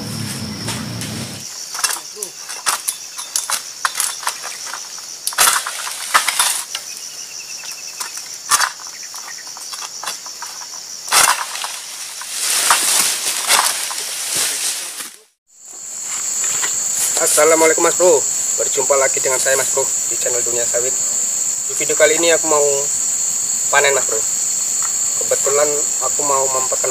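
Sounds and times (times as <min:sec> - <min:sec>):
crunching and leaf rustling: 0:00.0 - 0:23.2
insects buzzing: 0:00.0 - 0:26.9
sickle cutting strokes: 0:08.0 - 0:15.4, 0:16.0 - 0:17.7.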